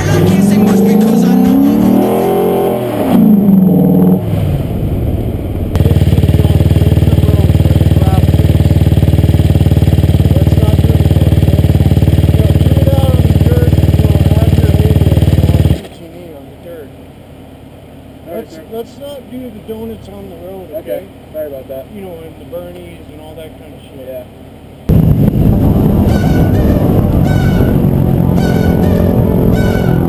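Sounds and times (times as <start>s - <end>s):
quad engine revving and idling: 0.0s - 16.9s.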